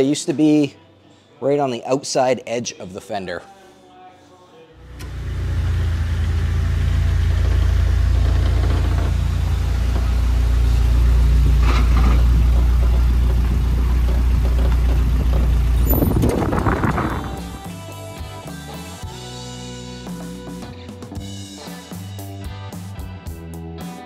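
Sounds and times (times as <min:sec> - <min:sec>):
four-cylinder engine running: 0:04.8 - 0:17.7.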